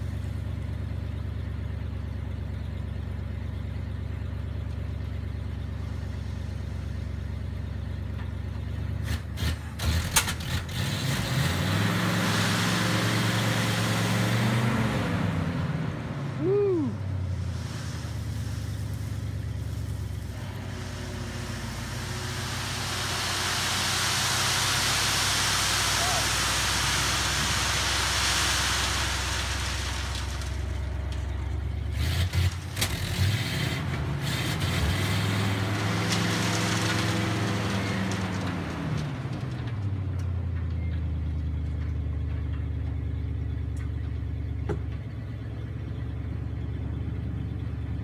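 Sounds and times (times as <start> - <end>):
truck engine idling and revving: 0.0 - 48.0
gravel sliding out: 10.7 - 40.2.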